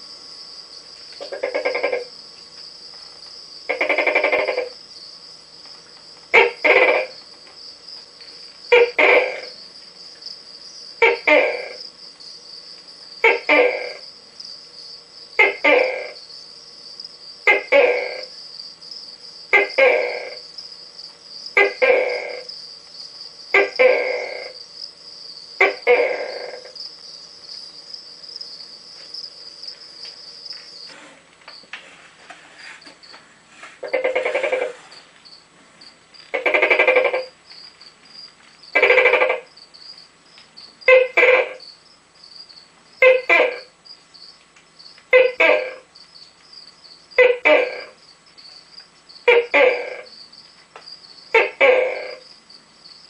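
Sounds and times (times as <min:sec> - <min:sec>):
gecko calling: 0:03.7 - 0:04.8, 0:06.3 - 0:07.2, 0:08.7 - 0:11.8, 0:13.2 - 0:14.1, 0:15.4 - 0:16.3, 0:17.4 - 0:18.4, 0:19.5 - 0:20.5, 0:21.5 - 0:31.2, 0:33.8 - 0:35.4, 0:36.2 - 0:40.0, 0:40.8 - 0:41.8, 0:43.0 - 0:44.4, 0:45.0 - 0:46.2, 0:47.1 - 0:50.3, 0:51.2 - 0:52.4.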